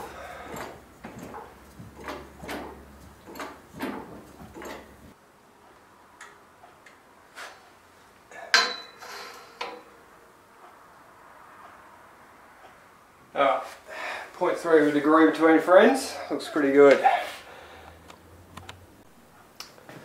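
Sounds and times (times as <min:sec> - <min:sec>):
hydraulic hand pump clicking: 0:00.0 - 0:05.1.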